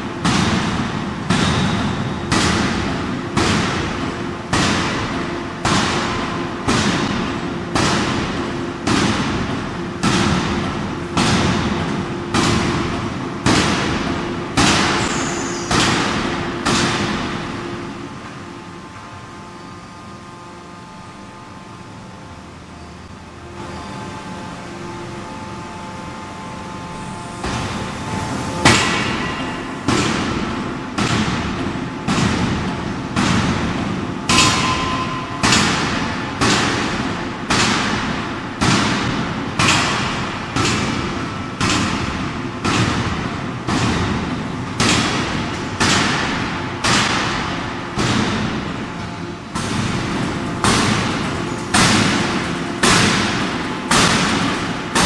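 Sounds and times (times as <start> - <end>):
machine hum: 0.0 - 55.0
forging hammer heavy blows: 26.9 - 48.7.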